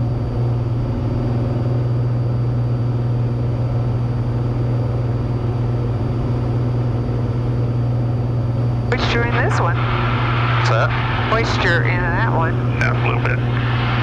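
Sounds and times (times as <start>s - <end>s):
airplane engine and propeller droning: 0.0s - 14.0s.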